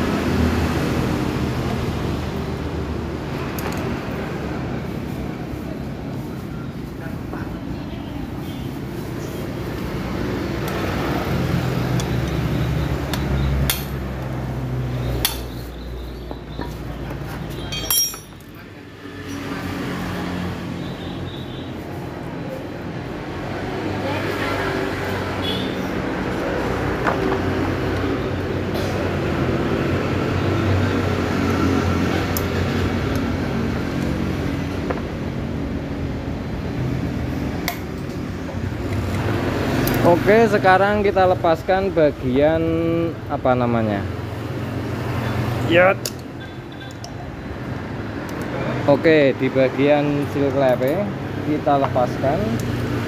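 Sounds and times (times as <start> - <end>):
metal tool tapping metal: 13.1 - 14.0, 17.6 - 18.5
metal clinks from cylinder block: 17.6 - 18.6.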